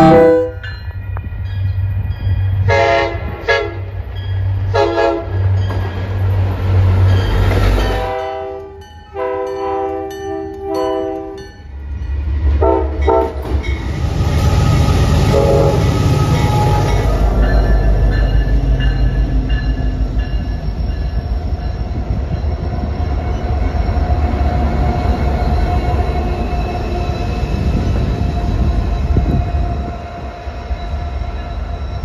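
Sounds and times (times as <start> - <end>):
locomotive horn blasts: 0.0 - 0.7, 2.7 - 3.9, 4.7 - 5.4, 7.9 - 11.4, 12.6 - 13.4, 15.3 - 17.1
locomotive engines rumbling: 0.0 - 32.0.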